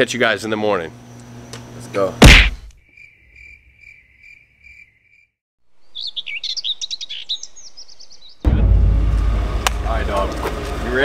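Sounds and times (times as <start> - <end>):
cricket chirping: 2.6 - 5.4
songbird singing: 2.8 - 8.5
loud low noise: 8.4 - 11.0.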